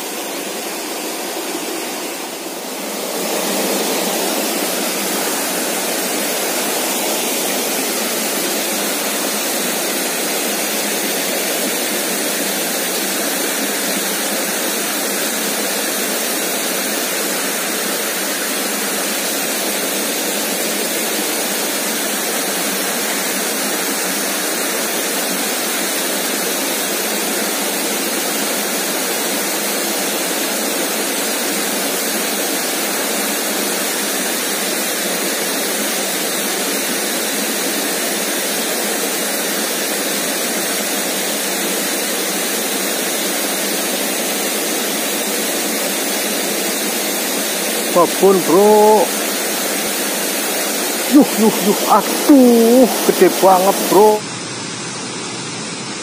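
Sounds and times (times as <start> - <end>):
stream rushing over rocks: 0.0 - 30.6.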